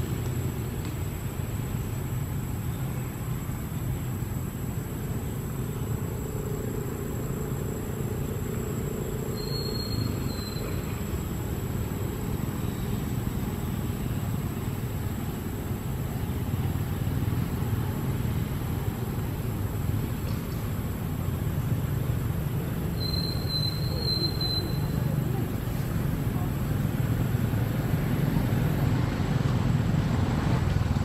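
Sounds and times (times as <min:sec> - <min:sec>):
low outdoor rumble: 0:00.0 - 0:31.0
high-pitched whine: 0:04.9 - 0:14.8.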